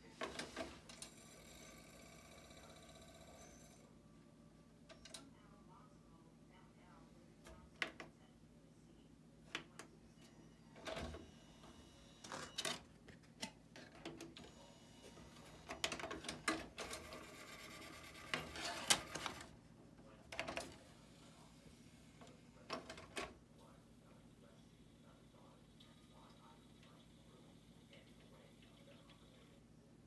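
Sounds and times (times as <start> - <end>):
disc tray whirring: 14.4 - 19.5.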